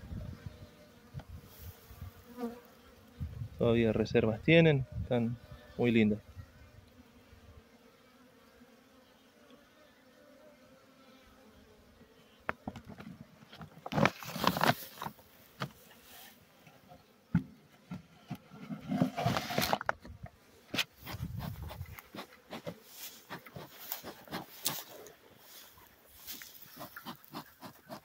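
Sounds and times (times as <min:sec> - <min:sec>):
plastic sheet crinkling: 0:13.9 - 0:15.2.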